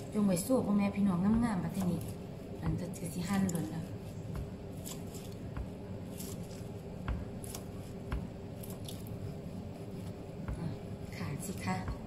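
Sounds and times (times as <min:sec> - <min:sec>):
low hum: 0:00.0 - 0:12.0
person talking: 0:00.2 - 0:04.0, 0:10.5 - 0:12.0
knife chopping on wooden board: 0:03.4 - 0:09.1, 0:11.7 - 0:12.0.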